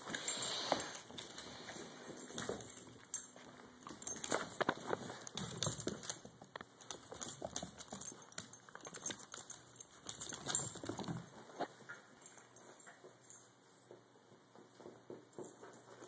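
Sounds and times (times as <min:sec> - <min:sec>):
dog claws clicking on wooden floor: 0:00.1 - 0:16.0.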